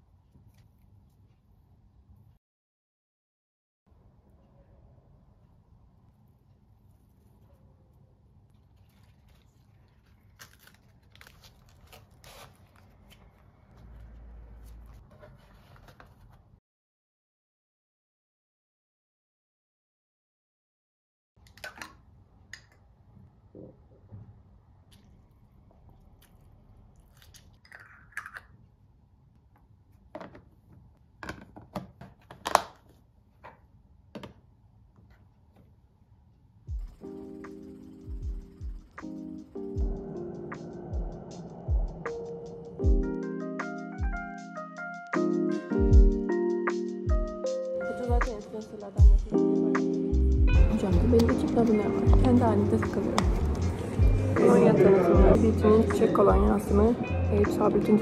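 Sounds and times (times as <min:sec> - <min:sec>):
faint handling sounds: 0:06.1 - 0:16.6
wrap crinkling: 0:08.5 - 0:16.3
lettuce leaves rustling: 0:08.6 - 0:15.1
low rumble: 0:39.8 - 0:42.7.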